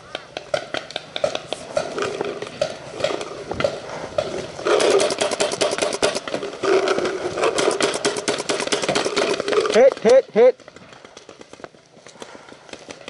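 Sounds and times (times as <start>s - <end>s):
paintball marker firing: 0.2s - 6.4s, 7.6s - 10.2s.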